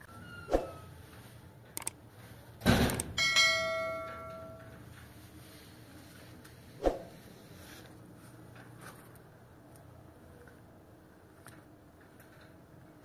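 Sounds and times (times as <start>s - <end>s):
quick clicks: 1.8s - 2.0s
bright bell ding: 3.2s - 4.7s.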